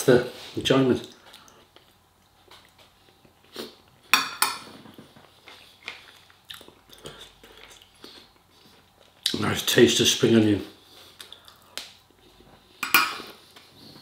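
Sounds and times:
chewing: 0:04.8 - 0:09.4
fork clinking on plate: 0:12.8 - 0:13.3.

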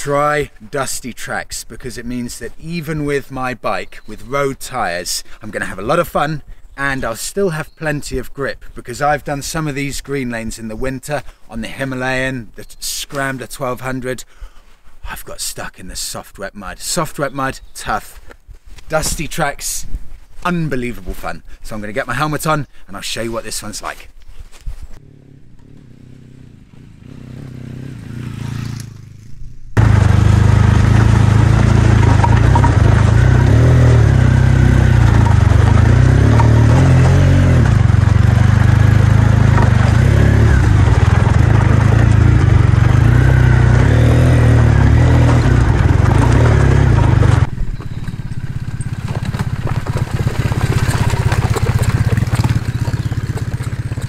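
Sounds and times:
motorcycle engine running: 0:25.0 - 0:54.0
rattling and scraping rumble: 0:29.8 - 0:54.0.

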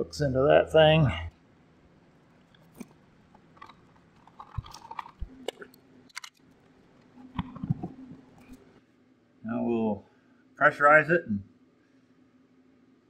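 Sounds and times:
rustling: 0:02.5 - 0:08.8.

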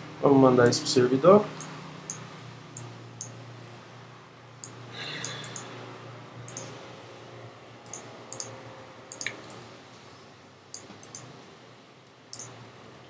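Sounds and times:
low steady hum: 0:00.0 - 0:13.0
computer mouse clicks: 0:04.6 - 0:05.7, 0:06.5 - 0:06.7, 0:07.9 - 0:08.5, 0:09.1 - 0:09.6, 0:10.8 - 0:11.3.

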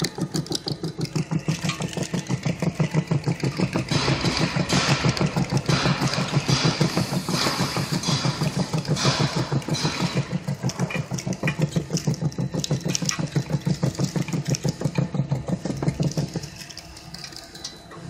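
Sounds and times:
conveyor drive pulsing hum: 0:00.0 - 0:18.0.

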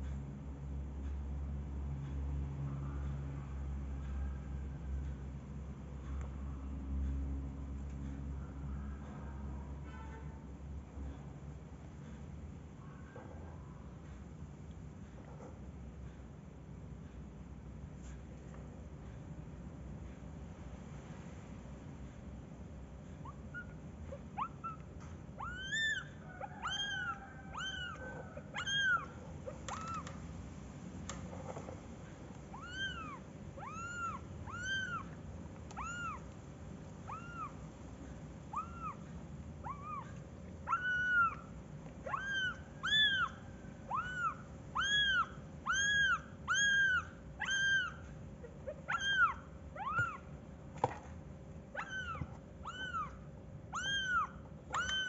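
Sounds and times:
kitten mewing: 0:23.2 - 0:30.1, 0:32.5 - 0:36.3, 0:37.0 - 0:37.6, 0:38.5 - 0:50.3, 0:51.7 - 0:55.0.

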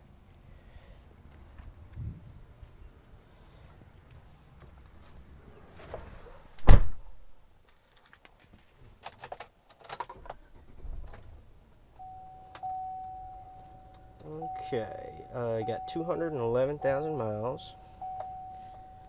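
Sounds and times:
dashboard warning chime: 0:12.0 - 0:19.0.

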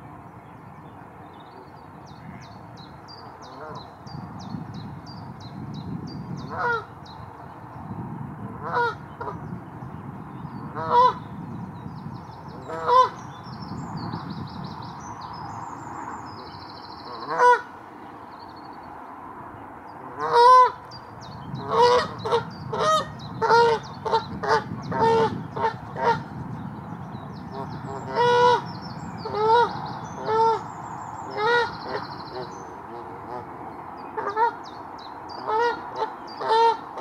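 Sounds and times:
goose honking: 0:17.1 - 0:17.7, 0:20.1 - 0:20.8, 0:31.3 - 0:33.5, 0:34.2 - 0:34.6, 0:35.4 - 0:37.0.

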